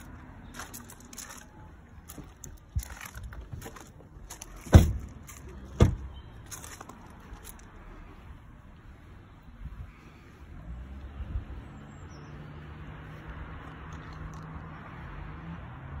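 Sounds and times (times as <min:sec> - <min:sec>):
footsteps on gravel: 0:00.0 - 0:05.8, 0:06.4 - 0:07.7
car doors shutting: 0:03.5 - 0:06.1.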